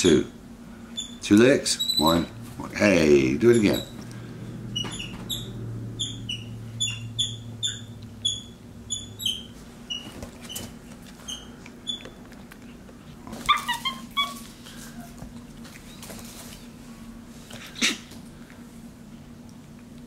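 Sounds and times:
monkey squeaky chirps: 0:04.8 - 0:10.1, 0:13.5 - 0:14.4.

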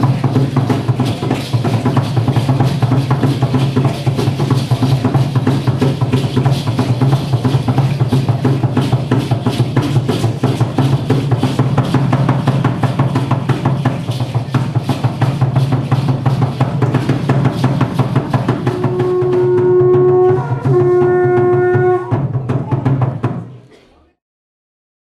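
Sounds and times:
rapid drumming on wooden drum: 0:00.0 - 0:23.5
long horn-like notes: 0:18.6 - 0:22.3.

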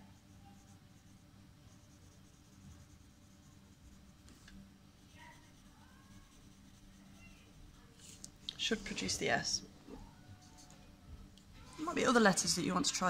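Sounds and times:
pencil scratching on paper: 0:00.0 - 0:04.4, 0:05.0 - 0:08.2
low room hum: 0:00.0 - 0:13.0.

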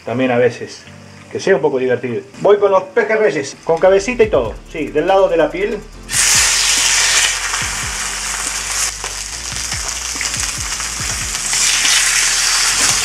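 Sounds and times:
fish sizzling in hot oil: 0:06.1 - 0:13.0.

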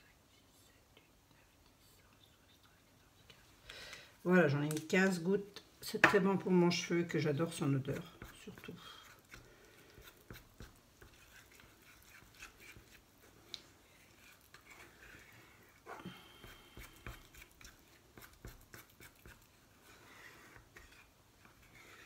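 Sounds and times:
spoon stirring paste in saucepan: 0:05.8 - 0:22.0.

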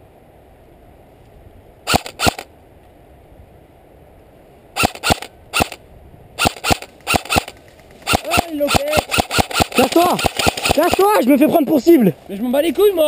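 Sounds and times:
airsoft rifle shots: 0:01.9 - 0:02.5, 0:04.8 - 0:05.8, 0:06.4 - 0:11.3.

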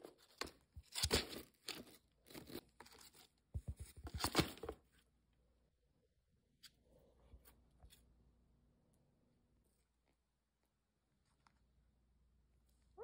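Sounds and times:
parakeet crunching cardboard: 0:00.0 - 0:04.8.

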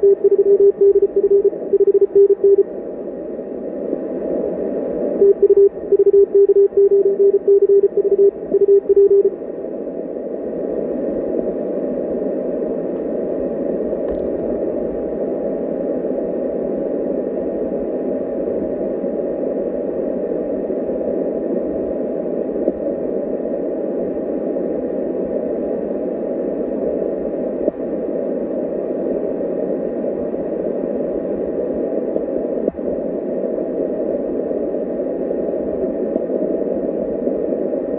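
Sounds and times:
morse code beeps: 0:00.0 - 0:02.7, 0:05.2 - 0:09.3
receiver hiss: 0:00.0 - 0:37.9.

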